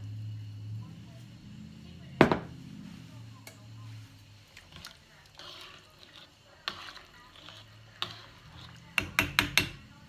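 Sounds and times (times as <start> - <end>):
spoon stirring beans in pan: 2.0 - 10.0
spoon tapping against pan: 8.9 - 9.8.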